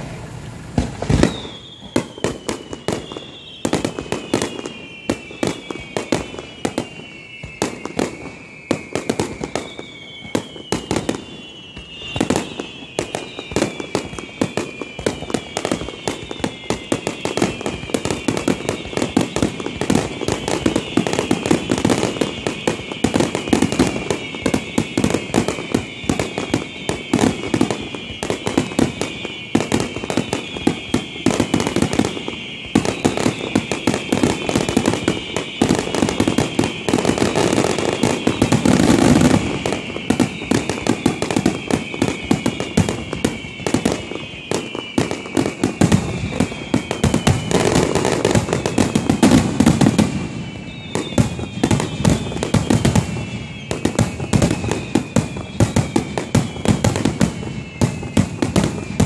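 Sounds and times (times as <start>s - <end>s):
firework bursts and crackling: 0.0s - 59.0s
firework whistles falling in pitch: 0.0s - 59.0s.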